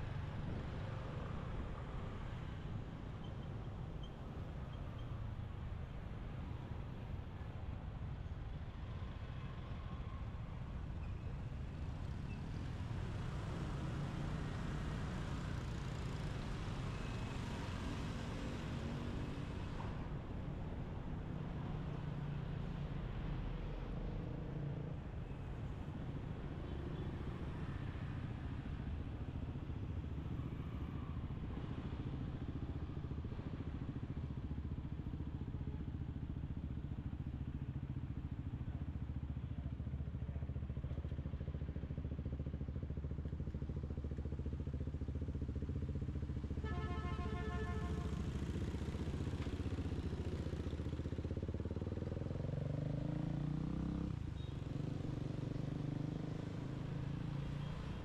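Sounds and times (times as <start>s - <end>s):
street traffic rumble: 0.0s - 58.0s
motorbike passing: 45.4s - 58.0s.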